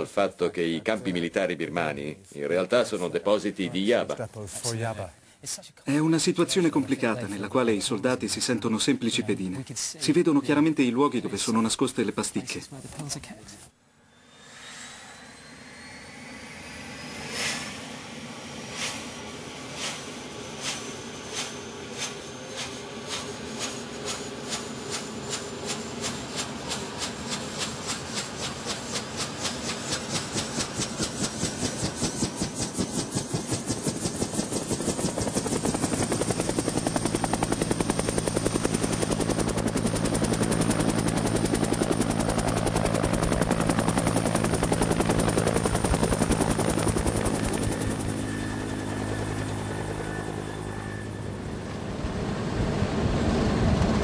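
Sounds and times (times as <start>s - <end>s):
helicopter turbine whine: 5.9s - 12.6s, 13.8s - 54.0s
helicopter rotor blade beats: 14.9s - 54.0s.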